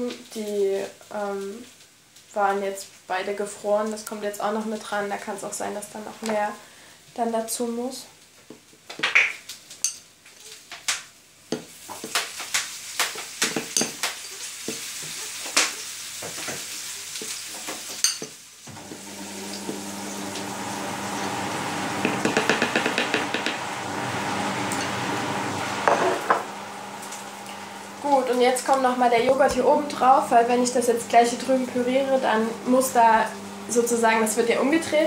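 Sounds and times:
tofu sizzling in a pan: 0:11.7 - 0:20.5
low hum: 0:20.0 - 0:35.0
scraping taps: 0:22.0 - 0:23.6.

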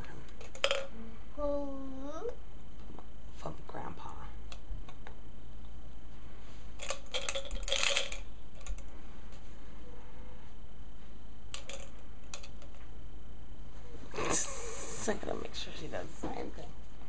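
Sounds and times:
plastic markers clattering in cup: 0:06.8 - 0:08.8.

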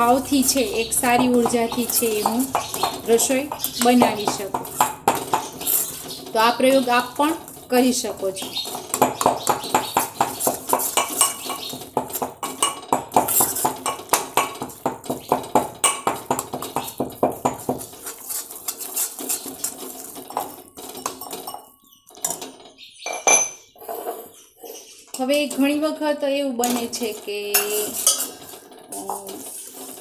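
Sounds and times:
pestle striking steel mortar: 0:00.0 - 0:06.0, 0:08.4 - 0:18.2
spoon stirring in steel pan: 0:00.0 - 0:22.7, 0:26.6 - 0:30.0.

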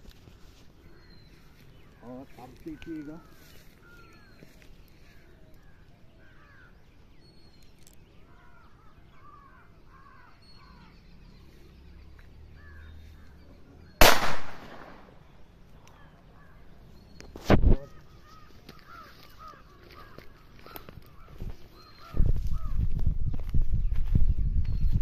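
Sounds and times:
birds calling: 0:00.0 - 0:25.0
revolver shot: 0:14.0 - 0:15.1.

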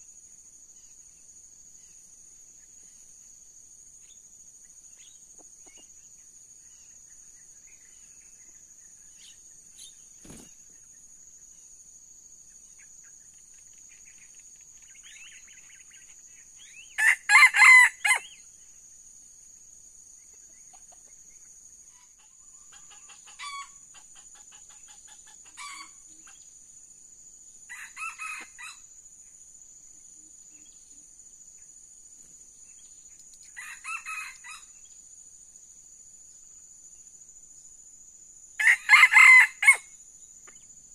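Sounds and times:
insect drone: 0:00.0 - 0:40.9
rooster crowing: 0:17.0 - 0:18.3, 0:27.7 - 0:28.8, 0:33.6 - 0:34.7, 0:38.6 - 0:39.9.

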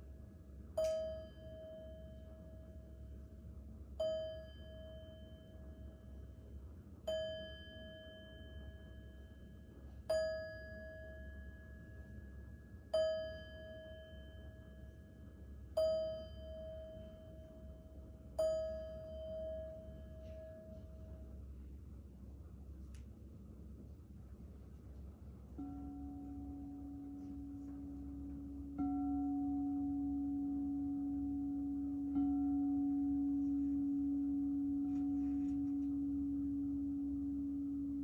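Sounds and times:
singing bowl struck with mallet: 0:25.6 - 0:38.0.

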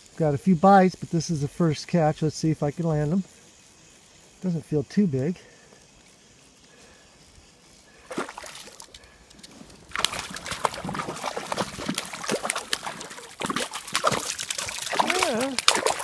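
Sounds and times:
fish splashing at water surface: 0:08.0 - 0:09.0, 0:09.9 - 0:16.0.

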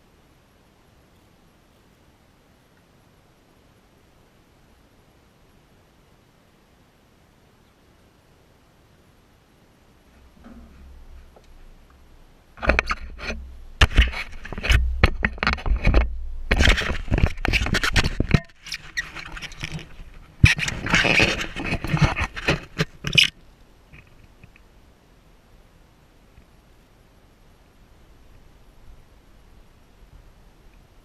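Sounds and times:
handling noise on camera: 0:10.1 - 0:24.7.

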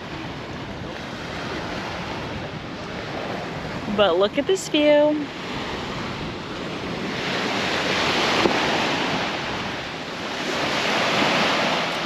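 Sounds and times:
small waves breaking on sand: 0:00.0 - 0:12.0
wind: 0:00.0 - 0:12.0.

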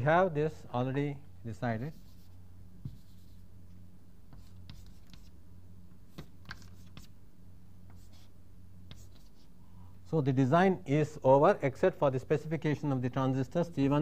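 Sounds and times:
steady low hum: 0:00.0 - 0:14.0
chalk scratching on blackboard: 0:01.9 - 0:03.5, 0:04.3 - 0:05.4, 0:06.1 - 0:07.2, 0:07.9 - 0:09.5.

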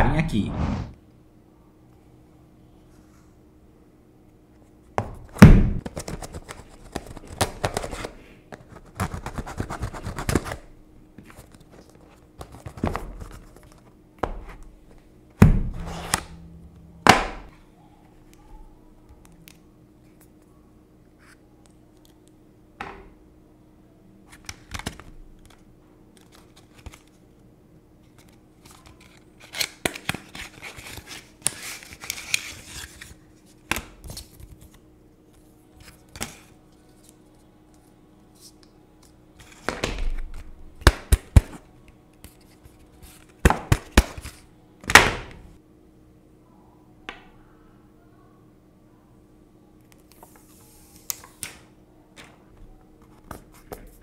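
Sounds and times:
paper tearing and rustling: 0:28.2 - 0:33.2.

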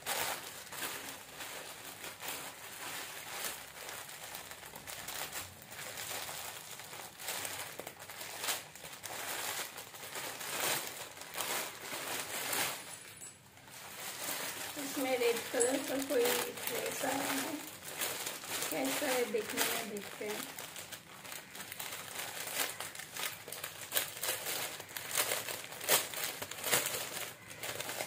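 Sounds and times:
plastic bag crinkling: 0:00.0 - 0:28.0.

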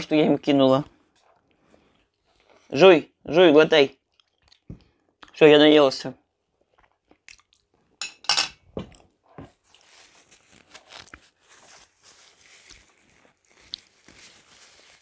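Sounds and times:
paper napkin rustling: 0:09.6 - 0:15.0.

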